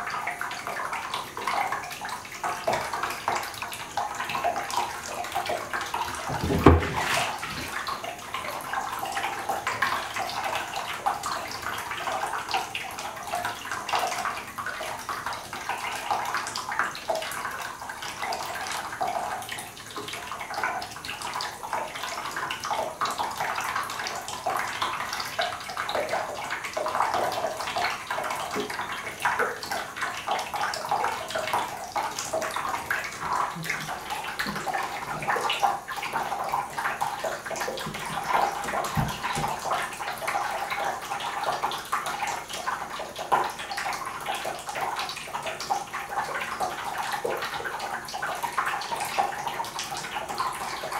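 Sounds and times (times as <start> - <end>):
tap water running into bathtub: 0.0 - 50.9
thump: 6.3 - 7.4.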